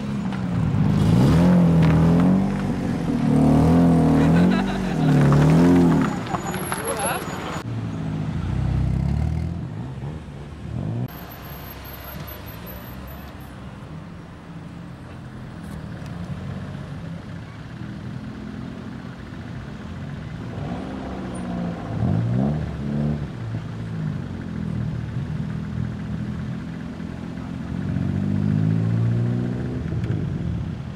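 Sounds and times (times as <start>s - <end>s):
car engines passing: 0.0s - 30.9s
engine revving: 0.6s - 7.6s, 20.4s - 23.4s, 27.2s - 30.4s
car accelerating past: 27.5s - 30.4s.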